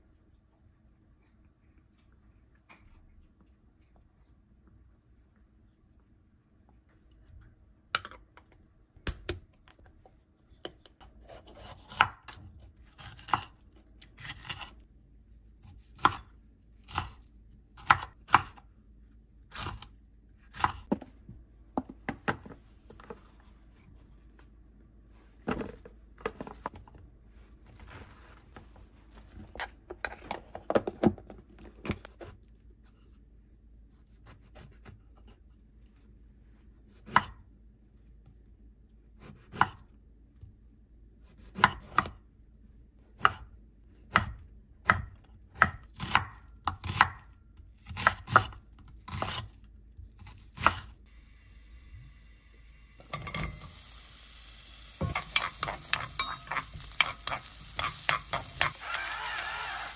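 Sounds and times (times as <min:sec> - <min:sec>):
knife chopping on wooden board: 0:43.2 - 0:43.5, 0:44.1 - 0:49.5.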